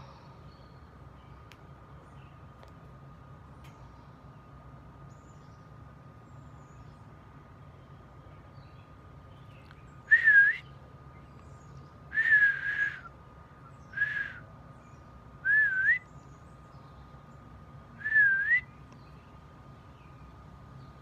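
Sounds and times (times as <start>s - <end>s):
person whistling: 10.1s - 10.6s, 12.2s - 13.1s, 14.0s - 14.4s, 15.5s - 16.0s, 18.0s - 18.6s.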